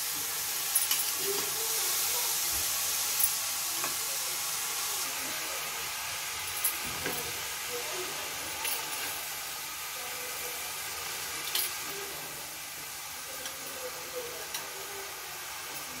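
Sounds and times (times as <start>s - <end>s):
cabbage sizzling in pan: 0.0s - 16.0s.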